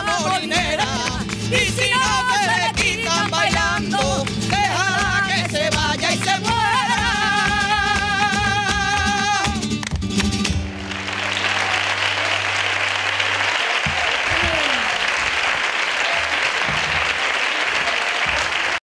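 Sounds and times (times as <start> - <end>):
audience applauding loudly: 10.5 - 18.8.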